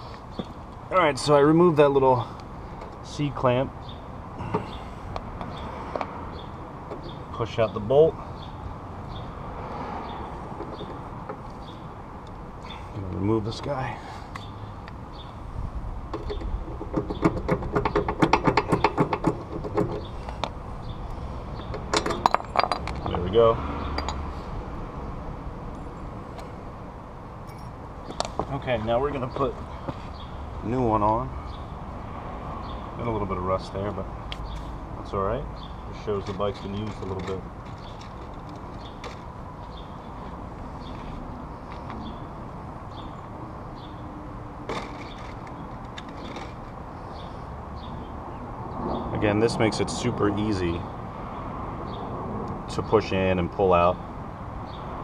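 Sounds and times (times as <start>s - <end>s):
outdoor background noise: 0.0s - 55.0s
bird chirping: 3.8s - 9.4s, 10.0s - 11.9s, 16.2s - 22.2s, 27.5s - 30.6s, 35.5s - 44.1s, 44.8s - 49.1s.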